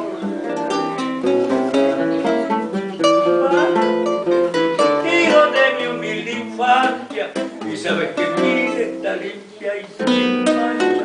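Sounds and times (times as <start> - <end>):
acoustic guitars playing: 0.0 - 11.0.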